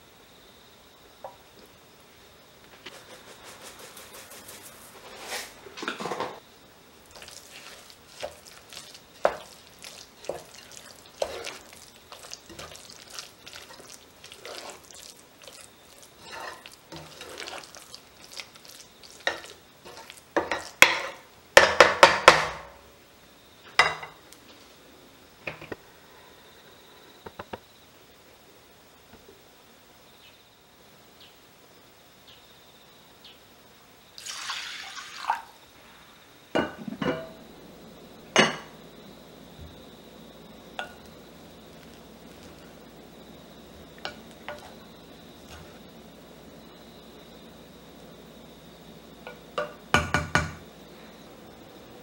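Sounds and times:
utensil stirring thick paste: 7.1s - 20.2s.

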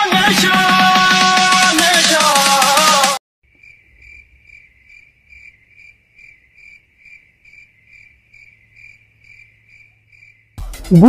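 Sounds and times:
insect chirping trill: 3.5s - 10.6s.

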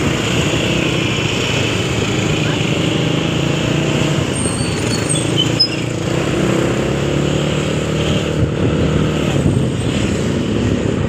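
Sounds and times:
motorcycle engine running: 0.0s - 5.0s
wind and road noise: 0.0s - 11.0s.

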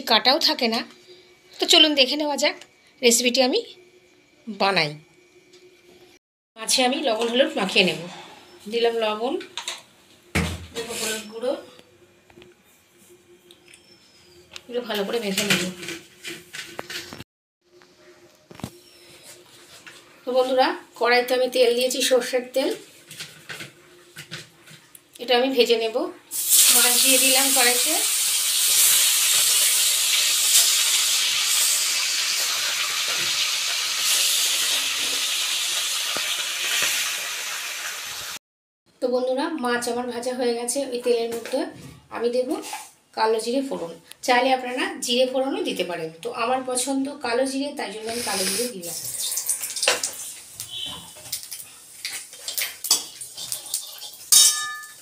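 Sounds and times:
metal spatula scraping a pan: 10.8s - 11.4s, 48.1s - 48.8s
fish sizzling in hot oil: 26.3s - 38.4s, 48.2s - 50.8s, 51.4s - 55.0s
spatula clanging on pan: 53.9s - 55.0s.

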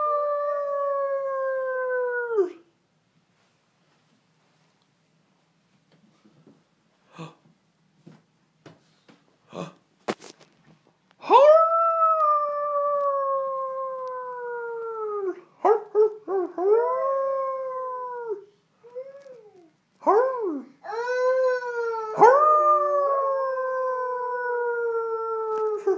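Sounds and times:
toddler howling: 11.3s - 15.4s, 16.4s - 19.7s, 20.4s - 25.9s
toddler yelping: 18.8s - 19.7s, 20.8s - 22.4s.

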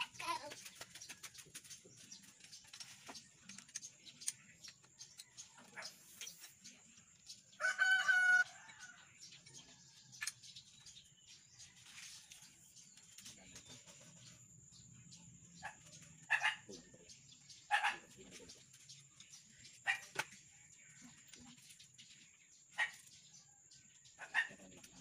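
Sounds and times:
rooster crowing: 7.6s - 8.6s.

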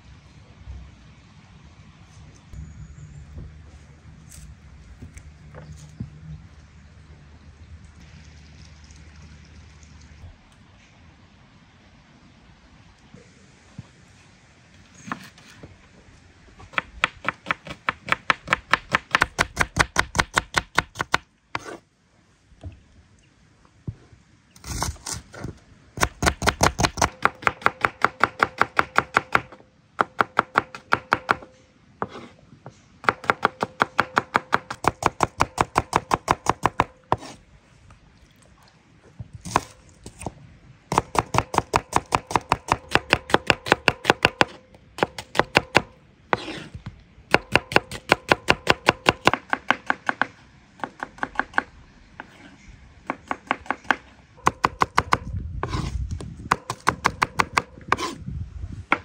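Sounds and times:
knife slicing onions on wood: 30.1s - 32.4s, 40.9s - 46.8s, 51.1s - 58.2s.

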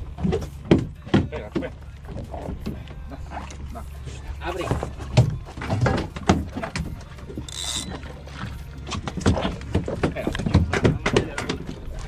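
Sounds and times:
knocks and handling noise on boat: 0.0s - 12.0s
high squeak: 7.5s - 8.0s.

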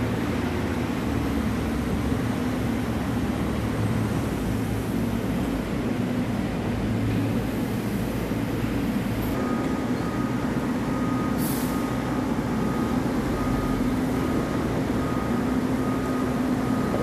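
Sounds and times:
diesel truck engine running: 0.0s - 17.0s
reversing alarm beeping: 9.3s - 17.0s
air brakes hissing: 11.3s - 12.0s.

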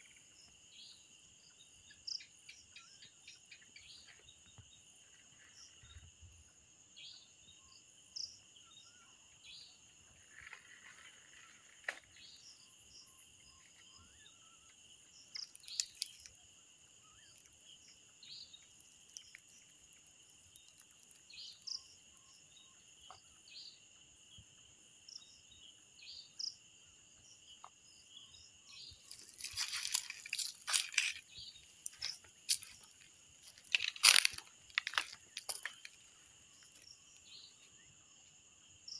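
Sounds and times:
crickets trilling: 0.0s - 38.9s
loud crackling crunches: 15.5s - 16.3s, 29.1s - 36.1s.

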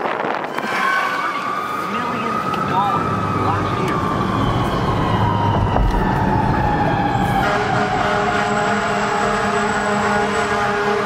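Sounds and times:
fire truck siren winding down: 0.0s - 11.0s
road noise: 0.0s - 11.0s
truck engine: 0.1s - 11.0s.

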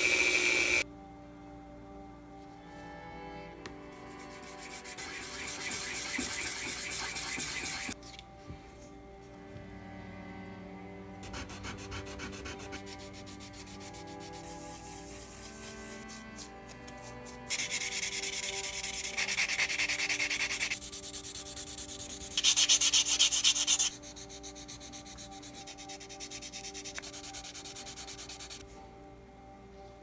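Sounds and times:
sanding plastic parts: 4.2s - 8.0s, 11.4s - 28.6s.

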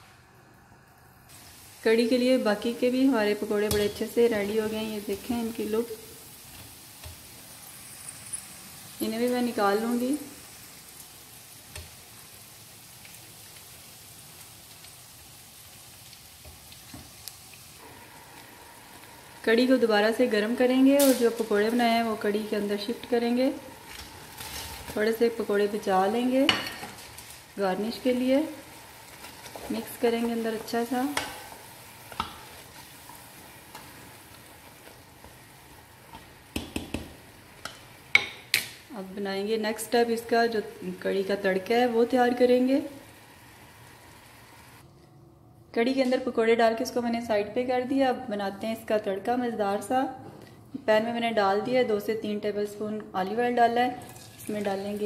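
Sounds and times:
deep-frying sizzle in oil: 0.0s - 44.8s
faint steady hiss: 0.0s - 55.0s
spatula stirring in pot: 28.6s - 38.5s
spatula knocking against pot: 36.5s - 38.5s.

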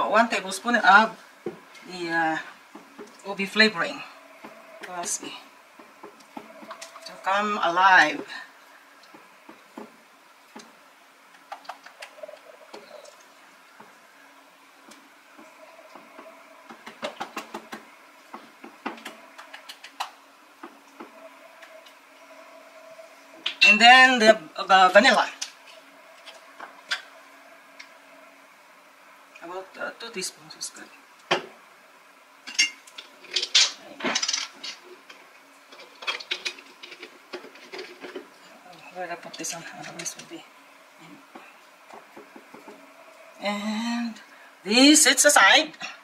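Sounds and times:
faint steady hum: 0.0s - 46.0s
utensils clinking against bowls: 32.5s - 34.8s.

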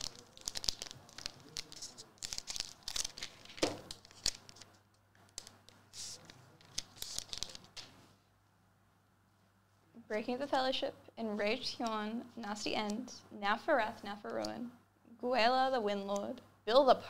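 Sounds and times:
foil wrapper tearing and crinkling: 0.0s - 4.6s, 5.4s - 7.7s.

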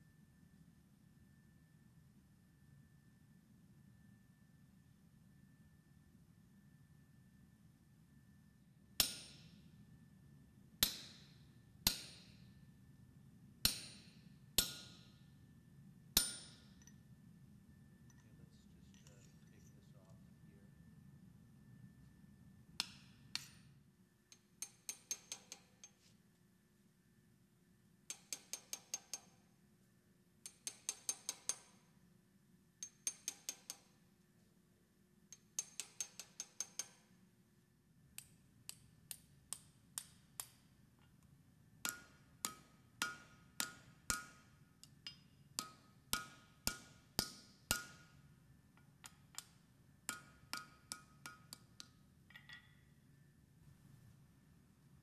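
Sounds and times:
hammer striking steel on anvil: 9.0s - 9.6s, 10.8s - 12.4s, 13.6s - 15.2s, 16.2s - 17.0s, 22.8s - 23.7s, 24.3s - 26.0s, 28.1s - 29.4s, 30.4s - 31.8s, 32.8s - 33.9s, 35.4s - 37.1s, 41.8s - 48.2s, 49.0s - 52.9s.

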